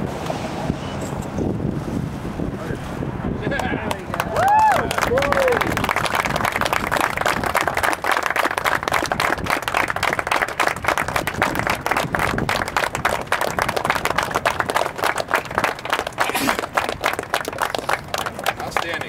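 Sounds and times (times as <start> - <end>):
crowd applauding: 3.6 - 19.0.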